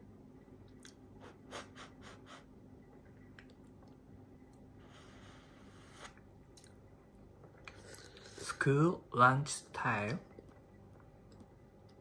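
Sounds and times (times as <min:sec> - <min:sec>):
soft breath: 0:04.7 - 0:06.2.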